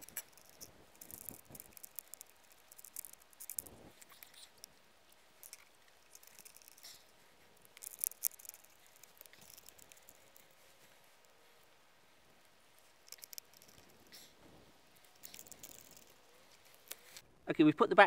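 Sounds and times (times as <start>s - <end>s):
light metallic clicks and clinks: 12.8s - 17.2s.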